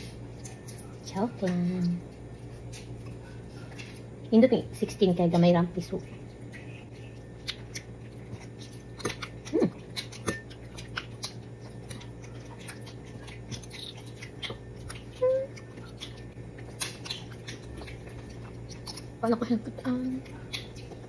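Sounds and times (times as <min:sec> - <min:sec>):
person chewing with mouth clicks: 0:06.1 - 0:19.2, 0:20.2 - 0:21.0
person humming: 0:15.2 - 0:15.5.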